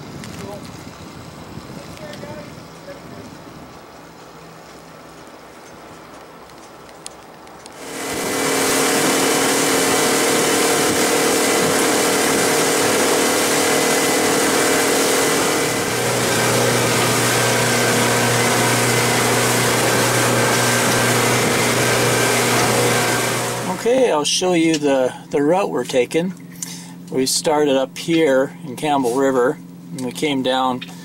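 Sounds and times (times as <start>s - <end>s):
boat motor running at speed: 0.0s - 31.0s
deeper hum: 7.6s - 31.0s
wind and water rushing: 7.8s - 24.2s.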